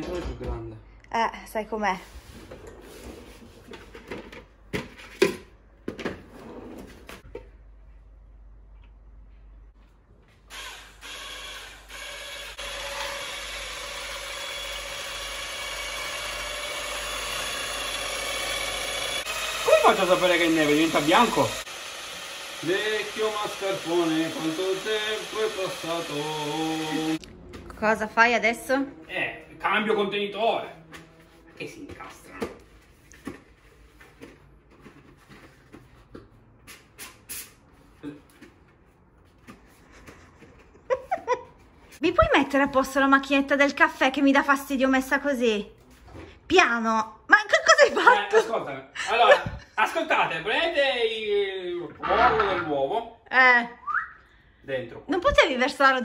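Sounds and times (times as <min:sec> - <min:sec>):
electric whisk whipping: 0:10.5 - 0:27.2.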